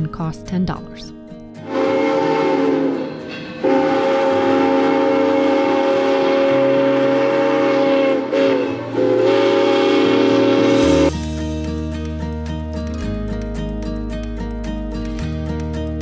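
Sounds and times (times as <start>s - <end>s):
steam locomotive whistle blast: 1.6s - 11.1s.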